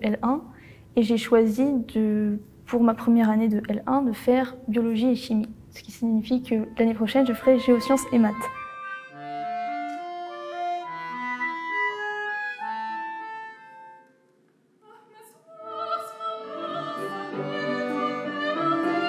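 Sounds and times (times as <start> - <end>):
clarinet: 6.6 - 14.3
accordion: 6.6 - 14.4
woman singing operatically: 14.8 - 19.0.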